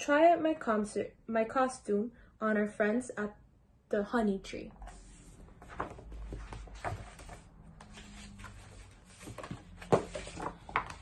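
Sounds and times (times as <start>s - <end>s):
book pages rustling: 4.8s - 11.0s
book thump: 9.2s - 11.0s.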